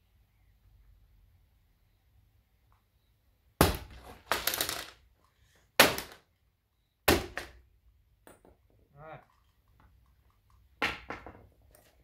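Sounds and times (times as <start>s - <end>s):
sledgehammer smashing wood: 3.6s - 4.7s, 5.8s - 6.3s, 7.0s - 7.6s.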